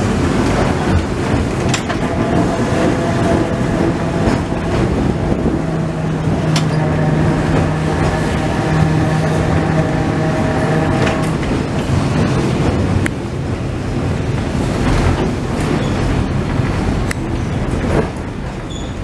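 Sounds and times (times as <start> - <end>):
steady hum: 0.0 - 14.1
tram wheels rumbling on track: 0.0 - 19.0.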